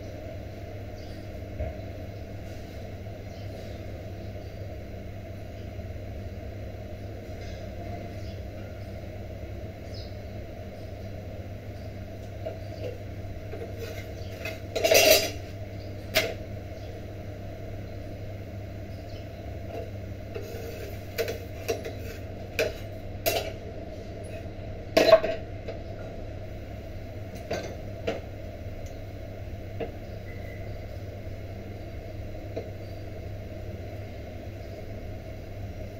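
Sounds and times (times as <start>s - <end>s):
gas burner rumble: 0.0s - 35.9s
utensils clinking on iron pan: 13.6s - 15.4s, 21.2s - 23.6s.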